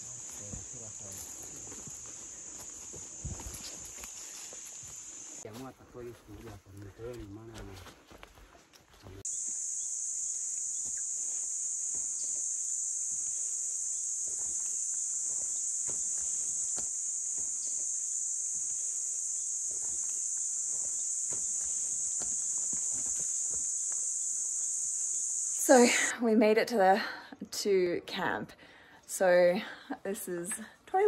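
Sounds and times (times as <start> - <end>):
high-pitched insect drone: 0.0 - 5.4, 9.2 - 26.2
footsteps on dirt path: 0.0 - 9.6, 11.8 - 12.5, 14.2 - 18.8, 19.6 - 24.2.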